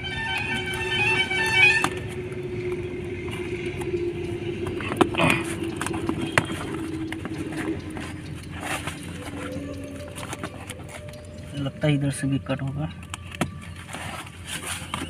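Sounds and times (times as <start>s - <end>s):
steady engine hum: 0.0s - 15.0s.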